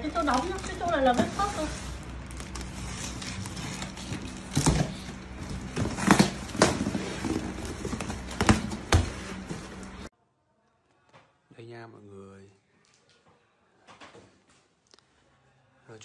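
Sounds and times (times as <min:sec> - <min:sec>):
cardboard and tape scraping: 0:00.1 - 0:10.1.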